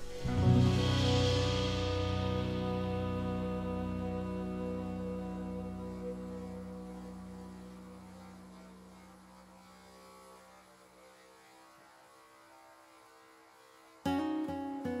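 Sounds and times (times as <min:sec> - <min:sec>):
strummed acoustic guitar song: 0:00.0 - 0:08.7, 0:14.0 - 0:15.0
held music chord: 0:00.0 - 0:09.7.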